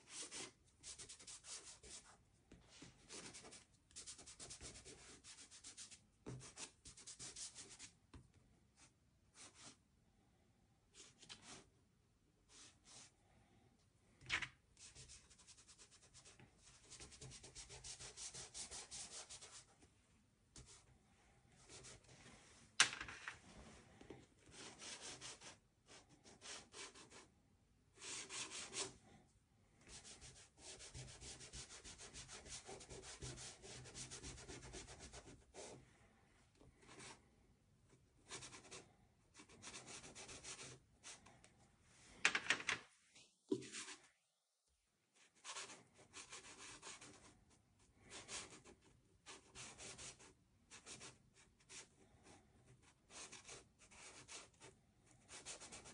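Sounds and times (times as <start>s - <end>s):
pastel scratching on paper: 0.0s - 2.2s, 2.8s - 8.0s, 14.8s - 19.7s, 24.5s - 27.3s, 28.0s - 29.0s, 29.9s - 35.8s, 39.4s - 41.2s, 45.2s - 47.4s, 52.8s - 55.9s.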